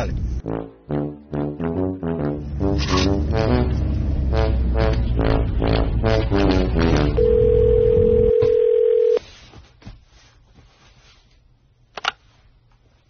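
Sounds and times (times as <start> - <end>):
telephone ringback tone: 7.2 - 9.2.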